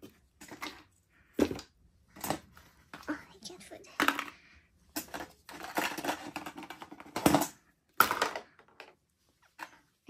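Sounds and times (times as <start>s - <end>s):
toy pieces clattering: 3.9s - 9.0s.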